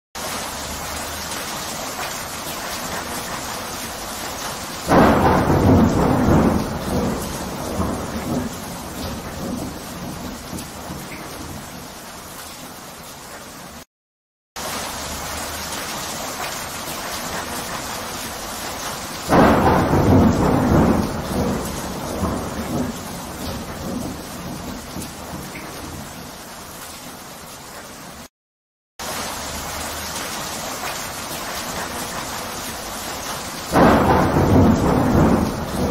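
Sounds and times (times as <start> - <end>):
steady rain: 0.2 - 13.9, 14.6 - 28.3, 29.0 - 35.9
thunder rumbling: 4.8 - 11.8, 19.3 - 26.2, 33.6 - 35.9.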